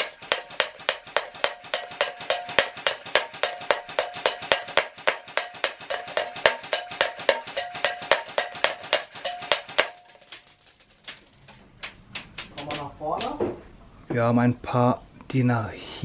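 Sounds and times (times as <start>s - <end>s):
airsoft gun rapid shots: 0.0s - 10.5s.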